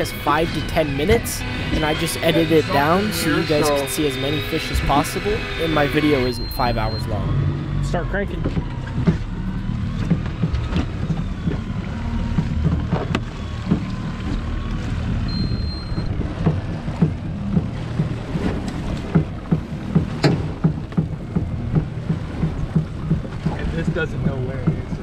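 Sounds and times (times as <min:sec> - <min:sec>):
water slapping boat hull: 0:00.0 - 0:03.1, 0:08.3 - 0:25.0
electric reel whine: 0:00.0 - 0:18.9
low rumble: 0:00.0 - 0:25.0.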